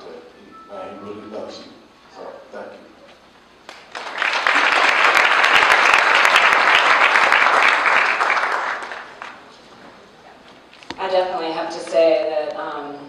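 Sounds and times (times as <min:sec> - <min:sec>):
audience applause: 0:03.7 - 0:09.5.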